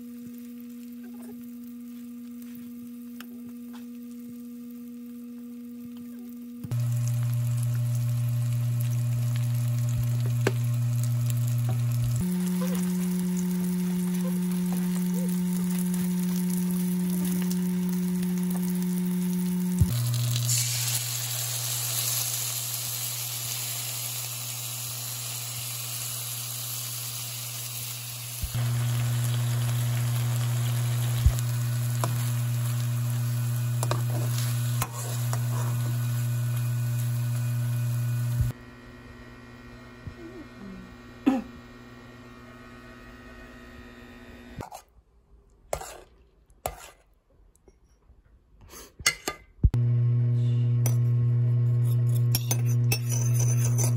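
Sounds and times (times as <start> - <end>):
sauce hissing in hot pan: 6.7 - 38.5
tofu sizzling in oil: 6.7 - 38.5.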